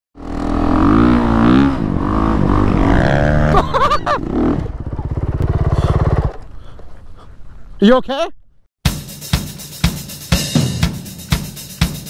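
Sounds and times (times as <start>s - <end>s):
dirt bike engine revving: 0.2s - 6.5s.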